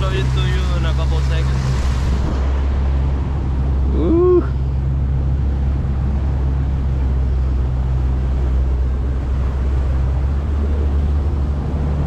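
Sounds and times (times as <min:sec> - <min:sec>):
motorboat engine droning: 0:00.0 - 0:12.0.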